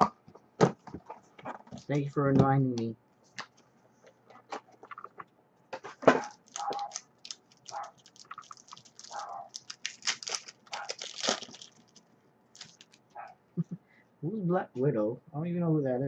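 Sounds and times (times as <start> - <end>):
cards rustling and clicking: 6.1 - 12.0, 12.6 - 13.0
foil pack crinkling and tearing: 6.1 - 12.0, 12.6 - 13.1.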